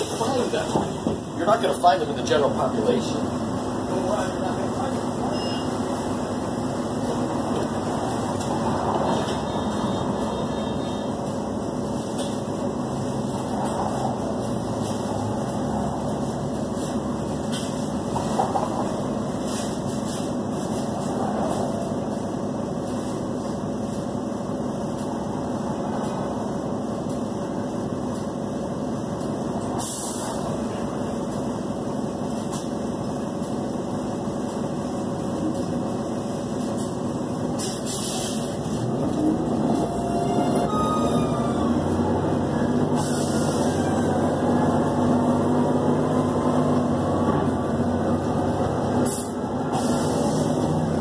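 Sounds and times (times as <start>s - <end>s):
bus engine and ventilation hum: 0.0s - 51.0s
air brake hisses: 29.8s - 30.4s, 37.6s - 38.6s, 42.9s - 44.1s, 49.0s - 50.6s.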